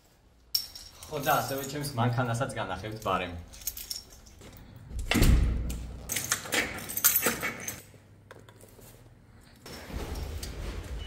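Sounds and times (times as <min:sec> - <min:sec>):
keys jangling: 0:02.8 - 0:04.9, 0:06.0 - 0:08.0
door thud: 0:05.0 - 0:05.7.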